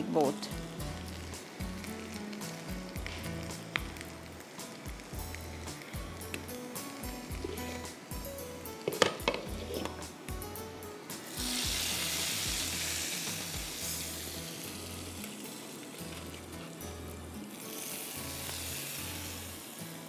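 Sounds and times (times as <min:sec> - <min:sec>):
hot oil sizzling: 0:00.0 - 0:20.0.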